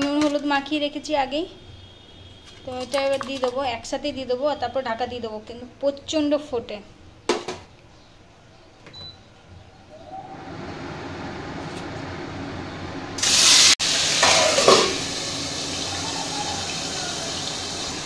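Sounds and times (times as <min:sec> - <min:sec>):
fish sizzling in hot oil: 0:13.2 - 0:18.0.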